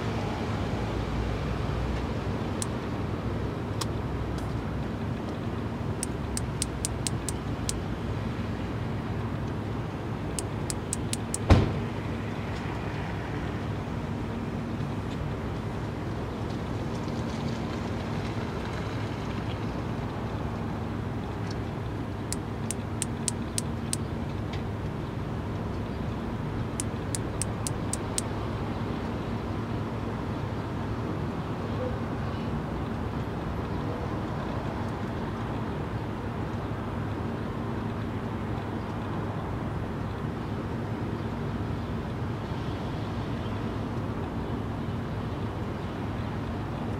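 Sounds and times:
low traffic rumble: 0:00.0 - 0:46.9
steady low rumble: 0:01.9 - 0:12.4
cicada wing clicks: 0:06.0 - 0:07.8, 0:10.4 - 0:11.5, 0:22.3 - 0:24.1, 0:26.8 - 0:28.3
loud thump: 0:11.4 - 0:11.8.

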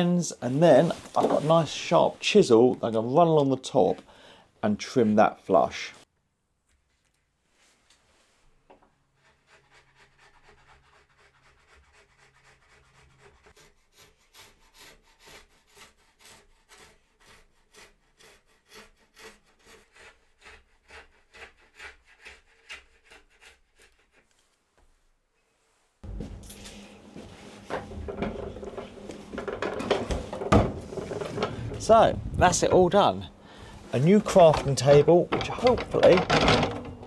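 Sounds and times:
chisel scraping edge banding: 0:09.2 - 0:24.3, 0:33.6 - 0:37.0.

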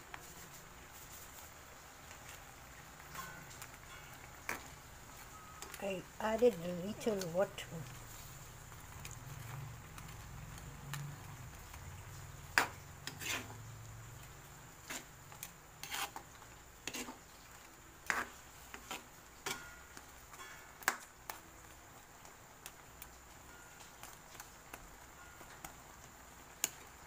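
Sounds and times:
spatula scraping metal wok: 0:12.5 - 0:20.9.

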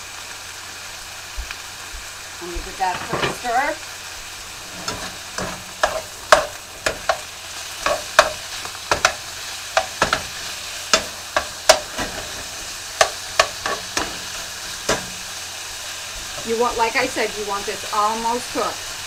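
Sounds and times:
chicken sizzling in oil: 0:00.0 - 0:19.0
spoon scraping a fry pan: 0:02.7 - 0:03.7, 0:04.5 - 0:16.6.

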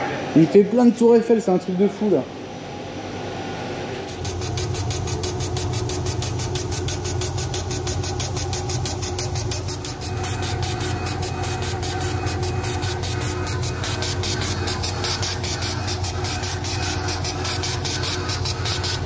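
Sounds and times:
engraving machine humming and pulsing: 0:04.1 - 0:19.0.

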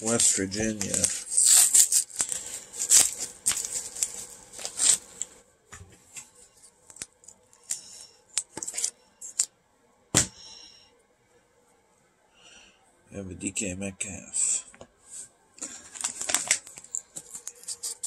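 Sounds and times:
paper and plastic crinkling: 0:00.0 - 0:05.4, 0:06.1 - 0:09.5, 0:15.6 - 0:18.0.

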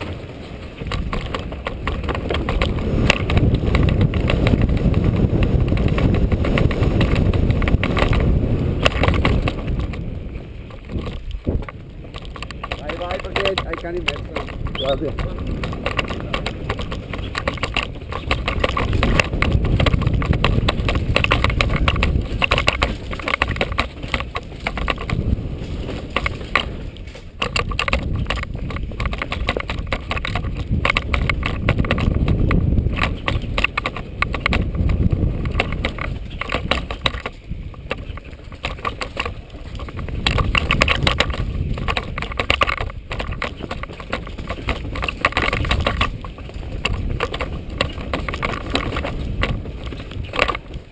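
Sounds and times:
bike clattering and rattling: 0:00.0 - 0:50.9
rumble of tyres and air: 0:00.0 - 0:50.9.

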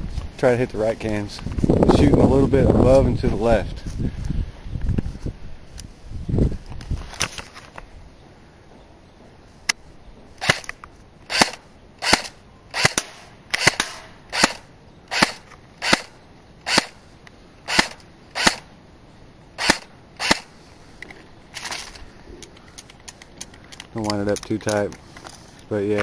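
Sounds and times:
airsoft gun single shots: 0:11.3 - 0:14.6, 0:17.7 - 0:18.6.

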